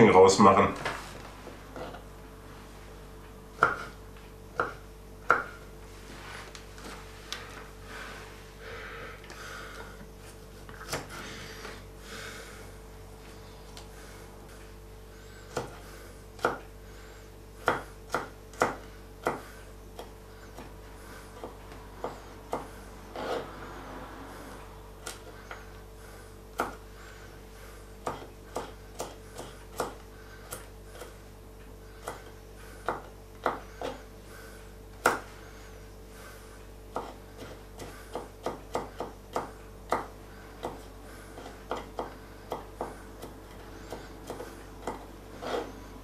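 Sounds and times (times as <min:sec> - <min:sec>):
knife chopping on wooden board: 0:03.6 - 0:05.6, 0:10.7 - 0:11.2, 0:15.5 - 0:15.8, 0:16.4 - 0:16.7, 0:17.6 - 0:23.5, 0:26.5 - 0:26.8, 0:28.0 - 0:31.2, 0:32.0 - 0:34.0, 0:35.0 - 0:35.3, 0:36.9 - 0:45.8.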